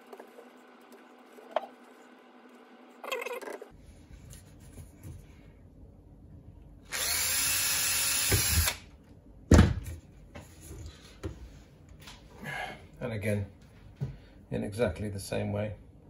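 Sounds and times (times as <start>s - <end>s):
cordless drill boring plastic: 6.9s - 8.8s.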